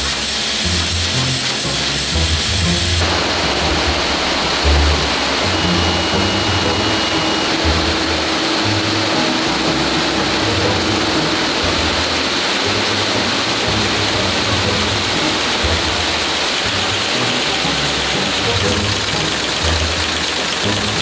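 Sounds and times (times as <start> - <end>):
factory machinery hiss and hum: 0.0 - 21.0.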